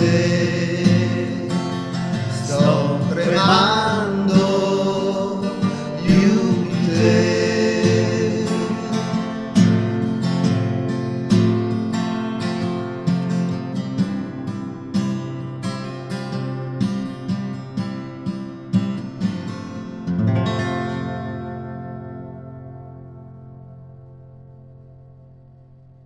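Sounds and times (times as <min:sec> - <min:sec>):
man singing: 0:00.0 - 0:10.1
acoustic guitar strumming: 0:00.0 - 0:26.0.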